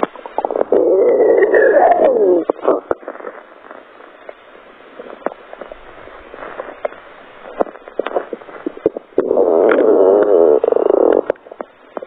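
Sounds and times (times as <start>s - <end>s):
soft crackling and pops of skin: 0.0s - 12.0s
stomach gurgles: 0.0s - 12.0s.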